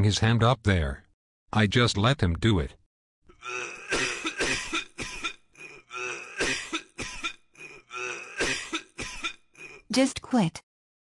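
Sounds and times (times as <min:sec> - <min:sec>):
person coughing: 0:03.4 - 0:09.9.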